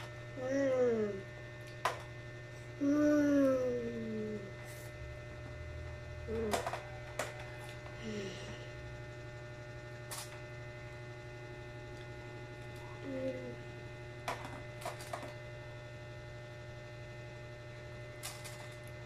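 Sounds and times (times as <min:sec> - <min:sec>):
electrical hum: 0:00.0 - 0:19.0
child vocal sounds: 0:00.4 - 0:01.3, 0:02.8 - 0:04.5, 0:13.0 - 0:13.6.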